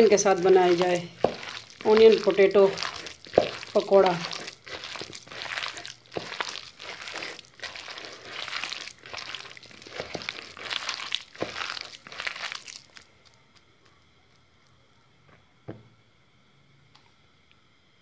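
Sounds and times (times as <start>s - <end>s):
wet batter mixing strokes: 0.0s - 14.0s.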